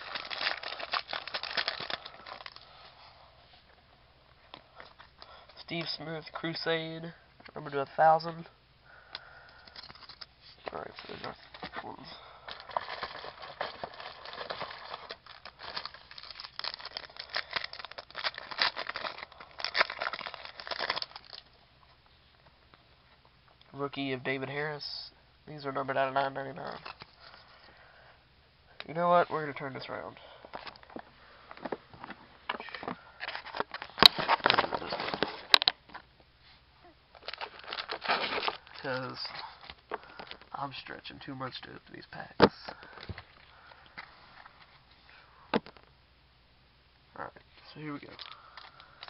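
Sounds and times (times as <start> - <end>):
card pack wrapper crinkling: 0.0 - 2.7, 12.5 - 21.5, 32.6 - 35.8, 37.2 - 40.5, 48.0 - 49.0
camera handling rustling: 30.5 - 35.8.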